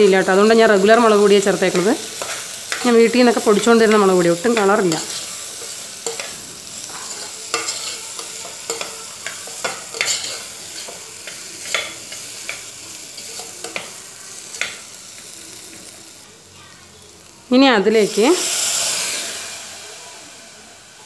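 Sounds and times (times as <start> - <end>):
hot oil sizzling: 0.0 - 21.0
metal spoon scraping a pot: 4.6 - 11.0.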